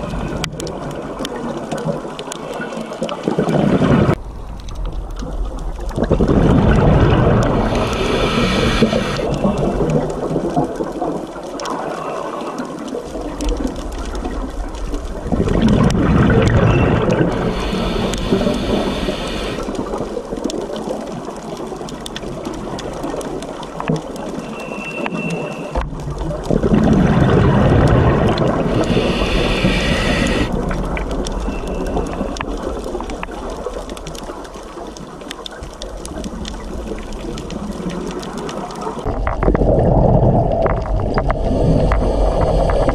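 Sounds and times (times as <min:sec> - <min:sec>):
exhaled bubbles rushing: 0:00.0 - 0:04.2, 0:05.2 - 0:42.9
faint clicks: 0:07.3 - 0:27.0, 0:27.8 - 0:39.6
regulator inhale hiss: 0:07.6 - 0:09.4, 0:17.4 - 0:19.8, 0:28.6 - 0:30.5.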